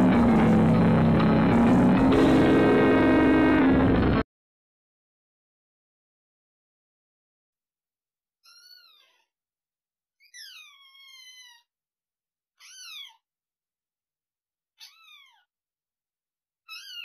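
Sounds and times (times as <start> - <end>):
kitten meowing: 14.8 - 15.5.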